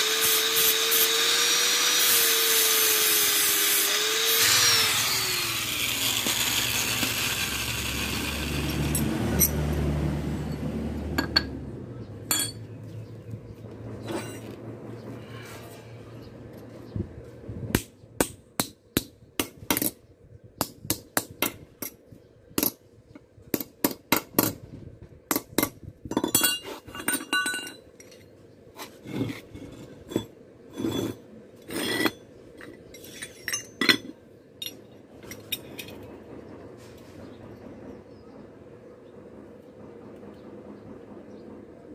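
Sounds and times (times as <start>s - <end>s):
metal rasping: 0.0s - 9.1s, 28.8s - 32.3s
hammer striking steel on anvil: 12.3s - 12.7s.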